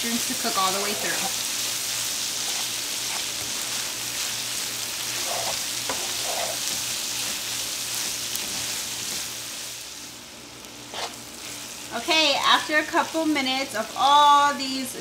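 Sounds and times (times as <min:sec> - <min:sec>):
food sizzling in a frying pan: 0:00.0 - 0:15.0
spatula stirring: 0:00.3 - 0:09.7, 0:10.8 - 0:11.6.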